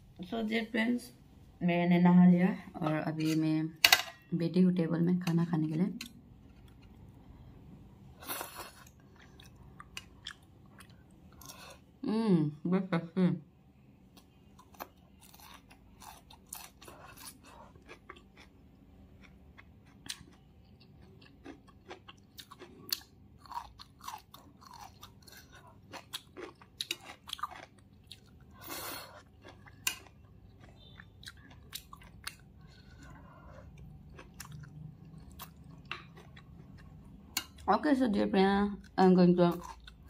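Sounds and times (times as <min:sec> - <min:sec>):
chewing crunchy food: 0:08.3 - 0:11.8, 0:14.2 - 0:37.7.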